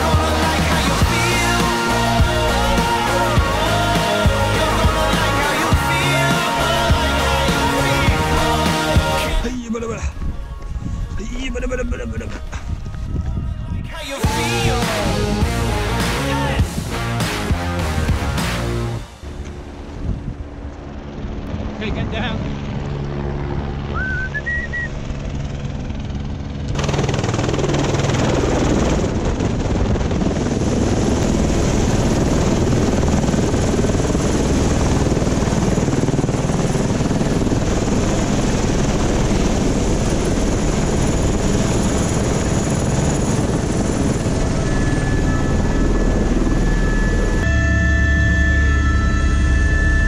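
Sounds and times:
helicopter turbine and rotor roar: 0.0s - 13.4s, 14.3s - 50.0s.

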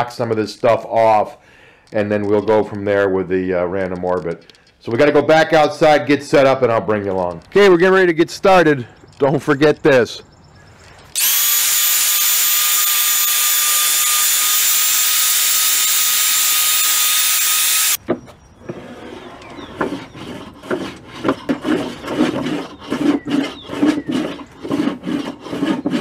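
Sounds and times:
belt sander whining: 11.0s - 18.0s
hand plane scraping wood: 18.7s - 26.0s.

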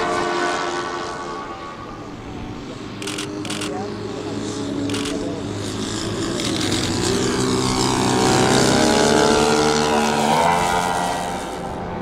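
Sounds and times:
propeller planes flying past: 0.0s - 12.0s.

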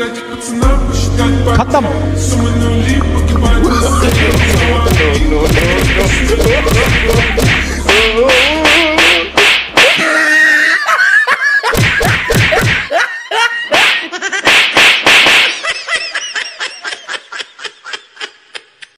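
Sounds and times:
slaps and smacks: 4.0s - 10.2s, 11.7s - 12.9s, 13.8s - 15.6s
laughter: 10.0s - 14.5s, 15.5s - 18.9s.

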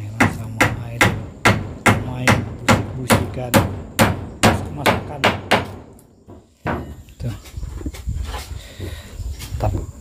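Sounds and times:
hammer striking nails into wood: 0.2s - 7.0s.

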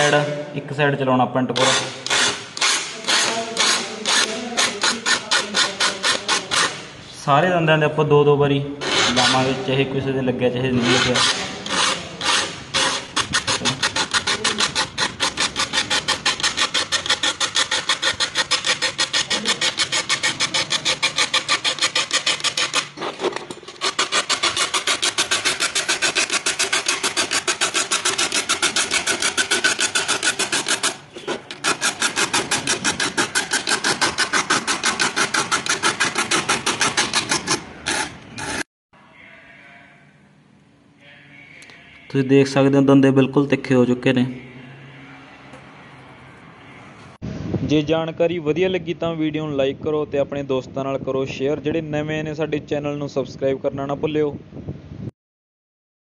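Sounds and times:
file rasping on saw teeth: 1.6s - 6.9s, 8.8s - 9.6s, 10.7s - 38.7s.

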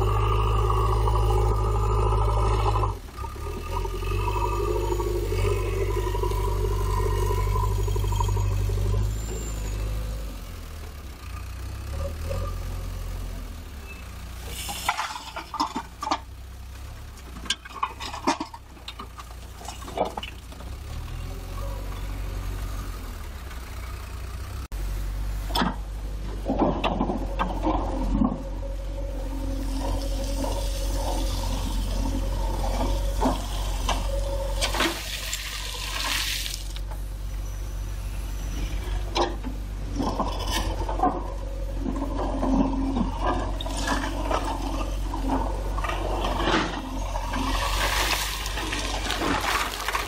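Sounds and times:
hydraulic whine: 0.0s - 10.6s, 25.4s - 49.9s
diesel engine under load: 0.0s - 50.0s
falling soil and gravel: 14.4s - 22.5s, 25.5s - 37.0s, 38.7s - 50.0s
bucket scraping soil: 29.1s - 36.8s, 41.9s - 50.0s
rocks clattering: 40.0s - 50.0s.

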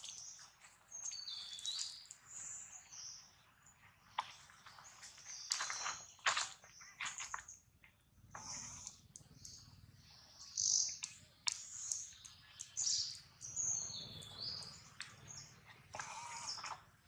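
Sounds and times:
high-pitched animal chirps and squeals: 15.9s - 16.8s.

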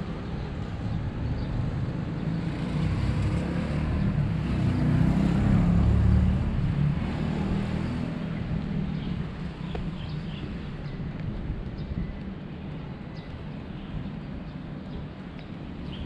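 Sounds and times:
vehicle engine passing by: 2.3s - 8.6s.

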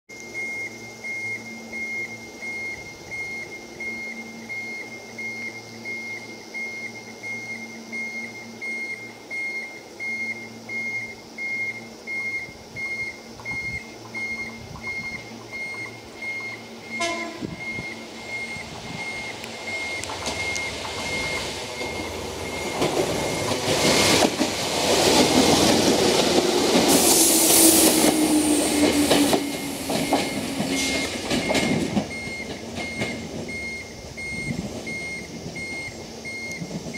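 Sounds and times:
electric train arriving: 0.1s - 36.9s
falling whine: 0.1s - 36.9s
high brake squeal: 26.9s - 36.4s.

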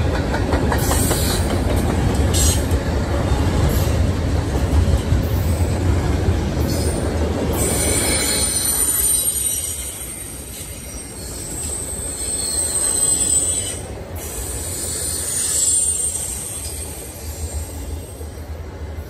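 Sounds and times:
train wheels rumbling: 0.0s - 19.0s
high-pitched wheel squeal: 10.9s - 13.8s.

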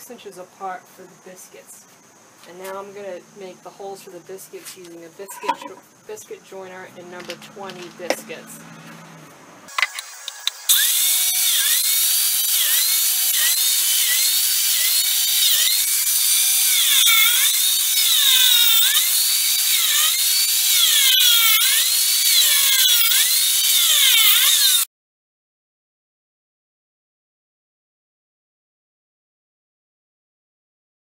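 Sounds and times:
biscuit joiner whining: 10.7s - 24.9s.

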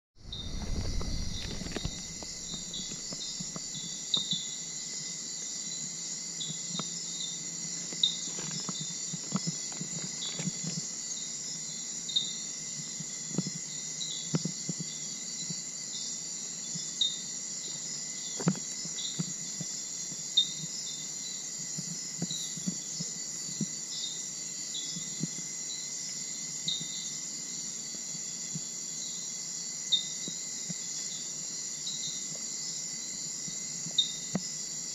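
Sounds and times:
insect chirping calls: 0.2s - 34.9s
insect drone: 0.2s - 34.9s.

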